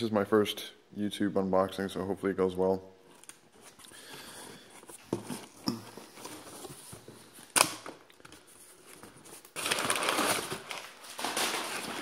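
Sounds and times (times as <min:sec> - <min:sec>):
packing paper rustling: 0:08.2 - 0:12.0.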